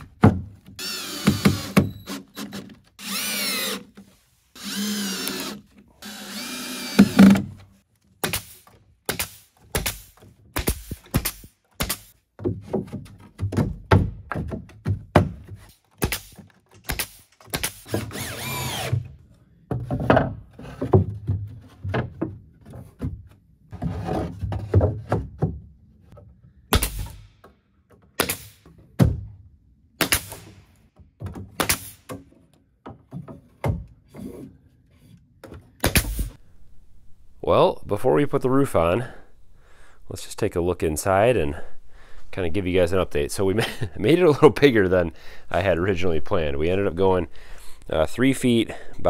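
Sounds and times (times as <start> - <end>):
boards knocking and thumping: 0.0 - 2.0, 7.0 - 7.7, 9.6 - 18.1, 18.9 - 26.4, 31.0 - 34.6
nail gun firing: 0.8 - 3.8, 4.6 - 7.5, 8.2 - 12.1, 16.0 - 19.0, 26.7 - 27.3, 28.2 - 28.6, 30.0 - 30.8, 31.5 - 32.2, 35.8 - 36.4.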